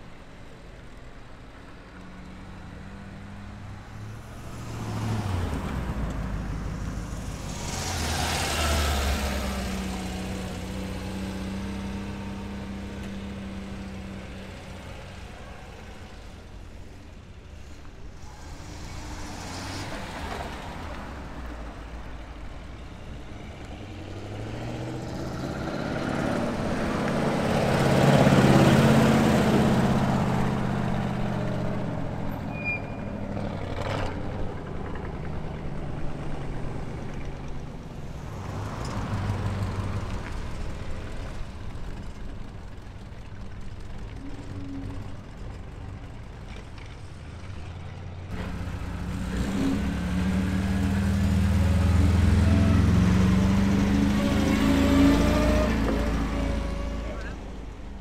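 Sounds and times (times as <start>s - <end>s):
cars driving slowly past: 0.0s - 58.0s.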